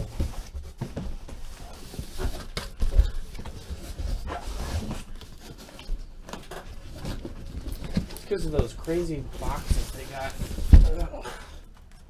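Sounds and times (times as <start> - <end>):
cardboard scraping: 0.0 - 11.6.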